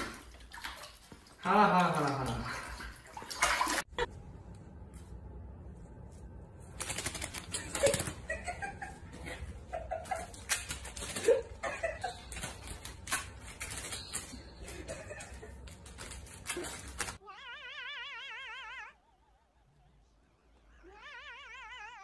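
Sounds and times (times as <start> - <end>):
water splashing in bathtub: 0.0 - 4.1, 9.9 - 17.2.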